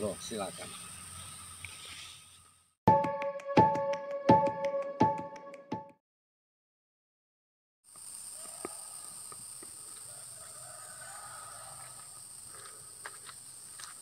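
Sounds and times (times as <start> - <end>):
high-pitched insect drone: 7.9 - 13.3.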